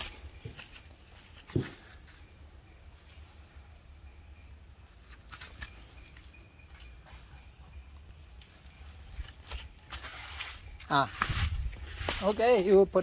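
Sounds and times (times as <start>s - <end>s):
faint chirps: 0.0s - 9.9s.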